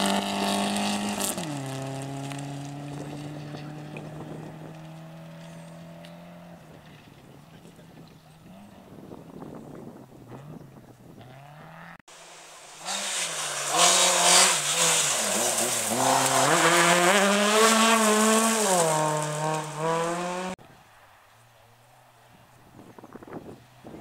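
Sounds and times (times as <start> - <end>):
rally car engine revving: 0.0 - 9.2, 10.3 - 20.6
tyres hissing on gravel: 12.1 - 20.4.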